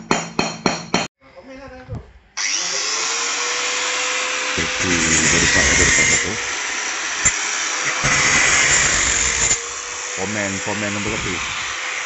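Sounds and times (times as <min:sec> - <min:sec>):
power tool hissing and whining: 0:02.4 - 0:12.0
men talking low: 0:04.6 - 0:06.4, 0:10.2 - 0:11.6.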